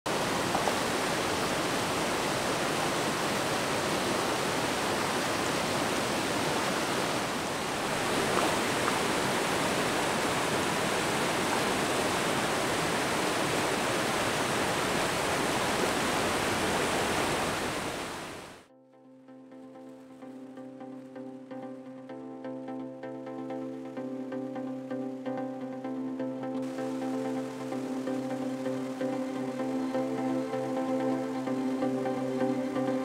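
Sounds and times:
water rushing into whirlpool: 0:00.1 - 0:18.7.

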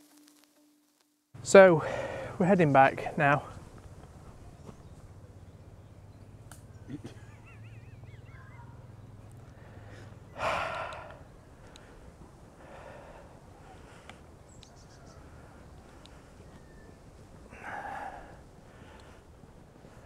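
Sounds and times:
man breathing out sharply: 0:01.8 - 0:02.4, 0:09.6 - 0:11.2, 0:12.6 - 0:14.1, 0:17.5 - 0:19.2
faint clicks: 0:10.6 - 0:12.0, 0:14.0 - 0:14.8, 0:15.8 - 0:16.6, 0:18.9 - 0:19.2.

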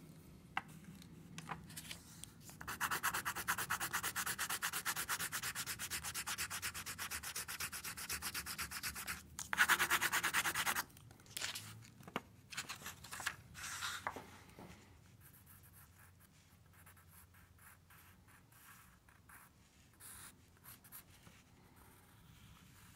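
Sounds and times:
faint handling sounds: 0:00.0 - 0:02.6, 0:10.9 - 0:15.2
pencil scribbling on paper: 0:02.6 - 0:10.8.

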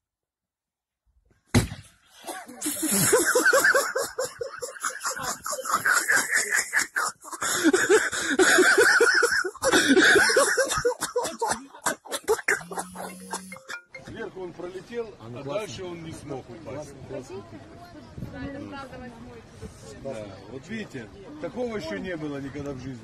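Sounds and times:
sharp impact of swing: 0:01.5 - 0:02.0
person laughing hard: 0:02.5 - 0:13.9.

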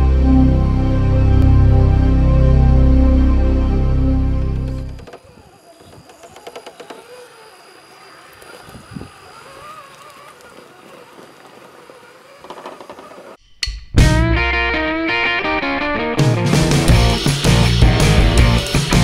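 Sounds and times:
electric motor whining faintly: 0:00.0 - 0:13.4
loud rock music with guitar: 0:14.0 - 0:19.0.

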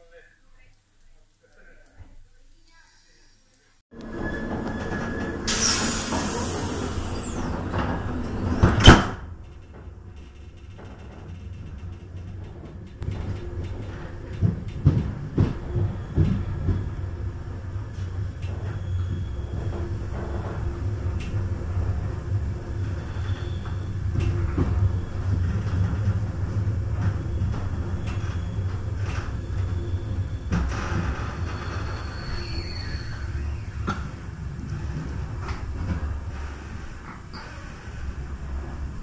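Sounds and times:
train carriage rumble: 0:03.9 - 0:39.0
train door sliding squeal: 0:04.0 - 0:09.3, 0:15.5 - 0:34.9
wheels clacking on track: 0:04.0 - 0:39.0.

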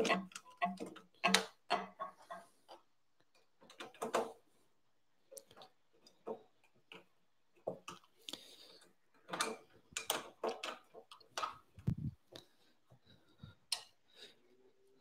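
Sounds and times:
metal clicks and rattles: 0:00.0 - 0:02.4, 0:09.2 - 0:11.7.

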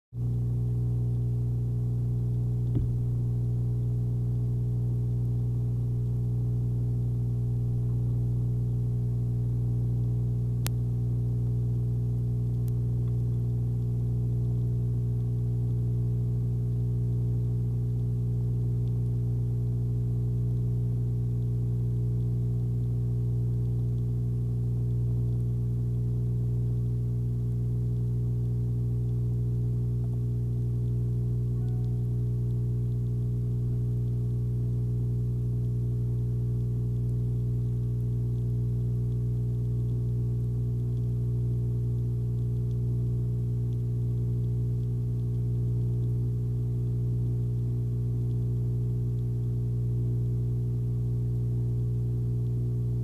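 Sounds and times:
electrical hum: 0:00.2 - 0:53.0
faint click: 0:12.4 - 0:15.8, 0:30.0 - 0:34.2, 0:35.3 - 0:47.4.

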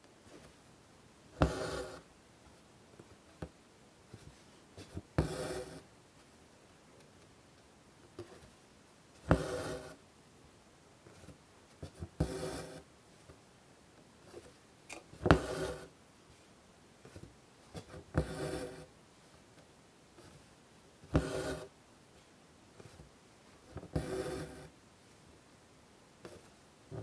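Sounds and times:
needle piercing cloth: 0:01.4 - 0:02.0, 0:21.1 - 0:21.7
thread rasping through fabric: 0:01.4 - 0:02.0, 0:21.1 - 0:21.7.

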